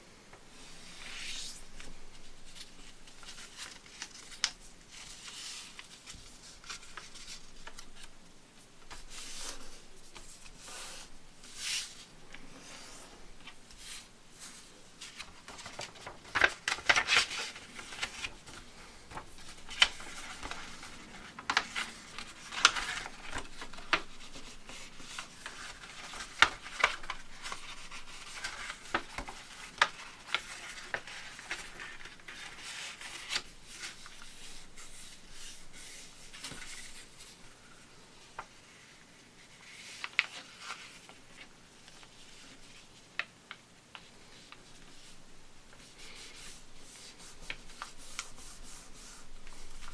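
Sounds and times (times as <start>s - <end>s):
paper rustling and crinkling: 0.7s - 8.2s, 8.8s - 49.9s
paper creasing crackles: 1.0s - 8.2s, 8.8s - 37.4s, 38.3s - 49.9s.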